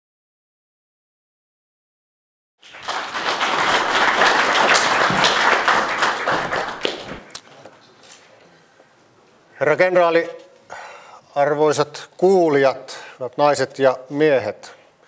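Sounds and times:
audience applauding: 0:02.6 - 0:07.4.

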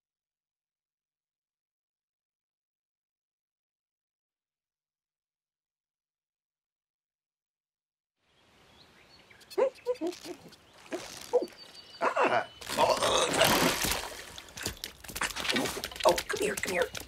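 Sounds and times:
cartoon croak-like calls: 0:09.6 - 0:13.8.

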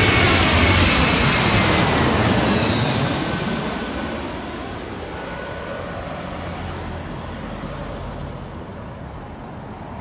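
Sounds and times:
cars on the road: 0:00.0 - 0:10.0
jet airliner roaring overhead: 0:00.0 - 0:10.0.

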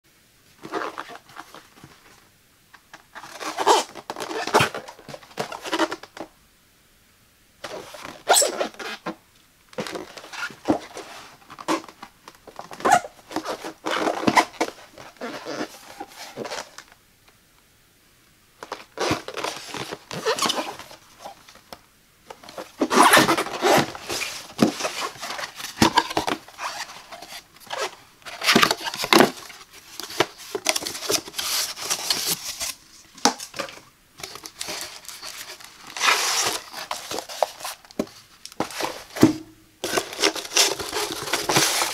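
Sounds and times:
shrink wrap crinkling and tearing: 0:22.3 - 0:39.1, 0:39.8 - 0:41.9
cardboard rubbing and tapping: 0:22.3 - 0:41.9.

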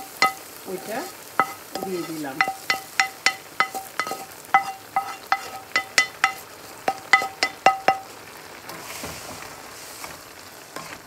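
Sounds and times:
metal pan clinking on wok rim: 0:00.0 - 0:08.1
soft sizzle: 0:00.0 - 0:11.0
spatula stirring vegetables: 0:00.0 - 0:11.0.

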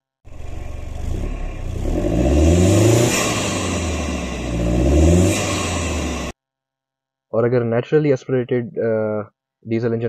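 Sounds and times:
diesel engine accelerating: 0:00.3 - 0:06.4.

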